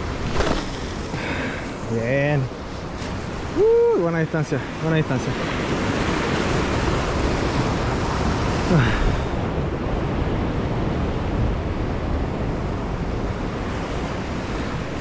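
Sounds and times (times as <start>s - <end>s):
surf breaking on rocks: 0.0s - 4.2s
wind buffeting microphone: 0.0s - 15.0s.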